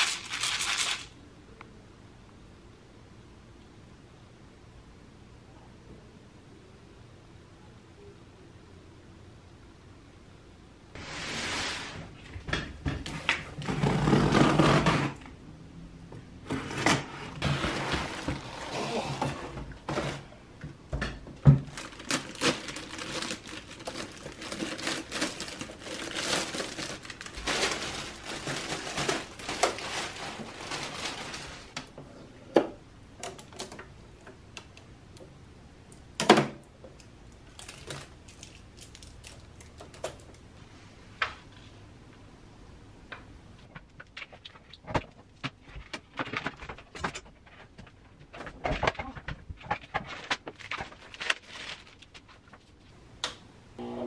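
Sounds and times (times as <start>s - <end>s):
plastic packaging rustling: 0.0s - 1.2s, 21.5s - 31.9s, 37.4s - 40.4s, 44.0s - 52.9s.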